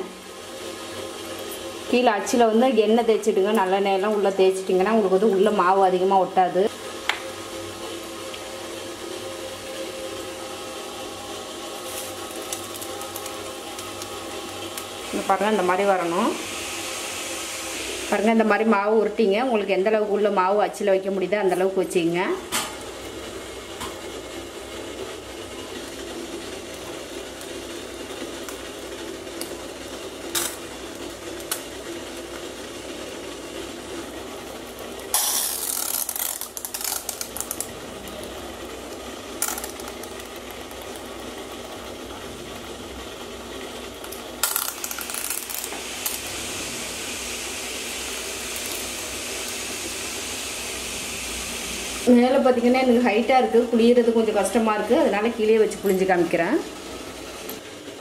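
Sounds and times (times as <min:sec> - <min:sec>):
steady hiss: 0:44.5 - 0:52.2.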